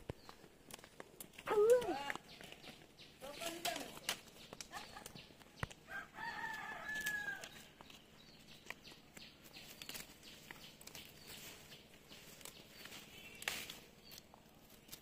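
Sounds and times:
rooster crowing: 0:05.9 - 0:07.6.

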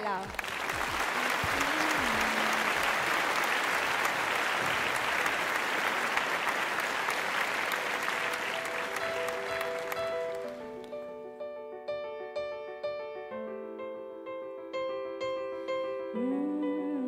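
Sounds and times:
audience applauding: 0:00.0 - 0:11.1
piano backing track: 0:07.2 - 0:17.0.

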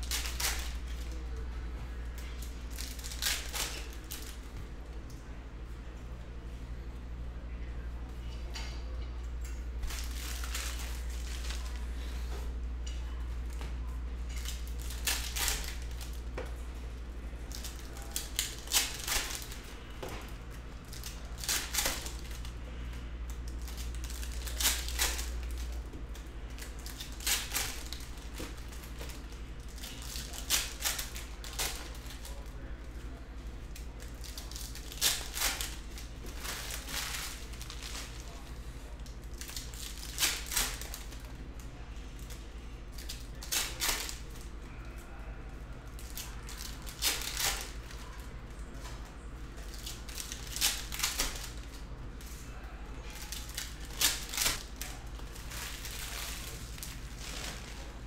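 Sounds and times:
card packs being torn open: 0:02.4 - 0:04.4, 0:14.3 - 0:16.2, 0:17.5 - 0:19.6, 0:20.8 - 0:22.6, 0:23.4 - 0:25.9, 0:26.5 - 0:32.5, 0:33.7 - 0:38.3, 0:39.0 - 0:41.2, 0:45.9 - 0:48.2, 0:49.6 - 0:51.8, 0:53.2 - 0:57.8.

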